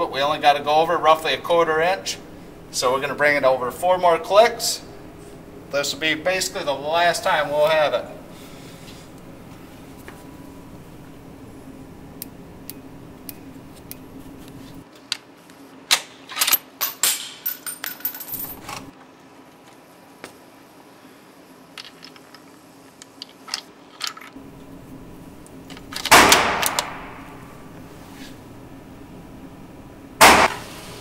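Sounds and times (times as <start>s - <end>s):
rifle shot echoing: 26.1s - 27.3s, 30.2s - 30.7s.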